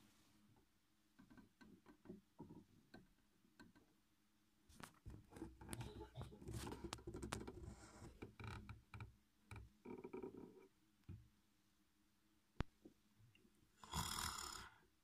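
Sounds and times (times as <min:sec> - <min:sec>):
soft rustling and scraping: 0:04.7 - 0:08.4.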